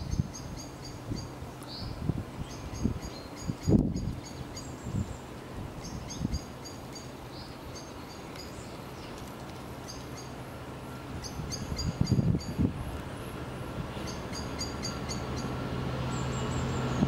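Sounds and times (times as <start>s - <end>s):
bird chirping: 0.0s - 5.2s, 5.8s - 9.2s, 9.8s - 12.7s, 13.9s - 17.0s
wind buffeting microphone: 0.0s - 6.6s, 11.2s - 17.0s
diesel locomotive engine droning: 9.6s - 17.0s.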